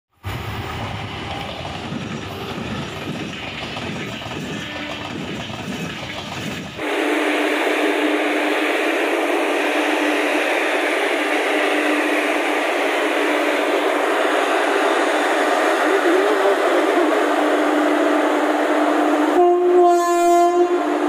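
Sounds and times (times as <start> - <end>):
passenger train passing: 0.1 - 21.0
wheels clattering on rails: 0.3 - 6.8.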